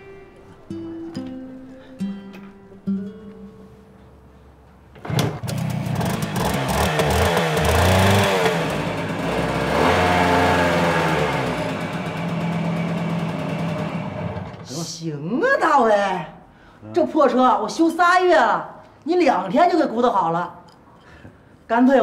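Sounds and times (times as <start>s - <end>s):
engine starting and revving: 5.0s - 14.7s.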